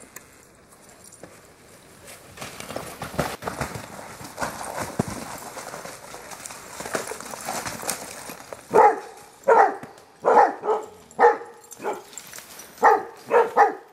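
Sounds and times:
dogs scuffling over snow: 3.8 - 9.5, 11.8 - 13.8
dog barking: 8.7 - 12.1, 12.8 - 13.9.

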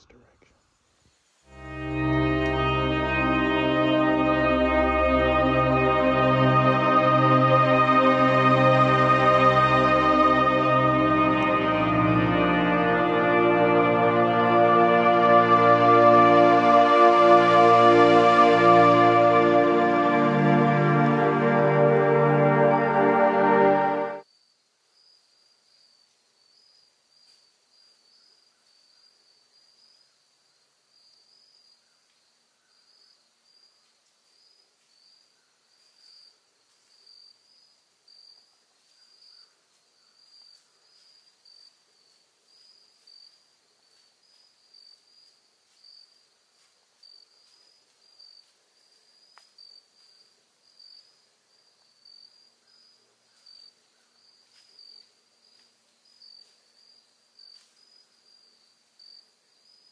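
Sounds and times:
insect chirping trill: 24.3 - 46.4, 47.0 - 59.9.

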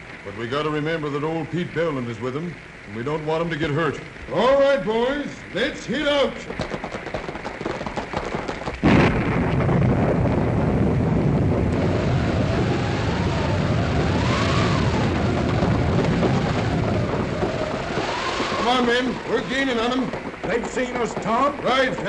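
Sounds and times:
hands slapping chests like hoofbeats: 6.4 - 8.8, 18.6 - 22.0
thunder crash and rumble: 6.8 - 22.0
wind machine howling: 9.6 - 22.0.

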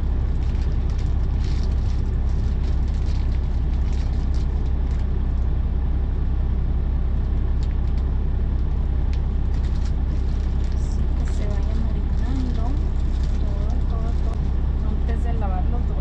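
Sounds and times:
diesel truck engine idling: 0.0 - 16.0
plastic bag crinkling: 0.2 - 5.2, 9.2 - 14.6.

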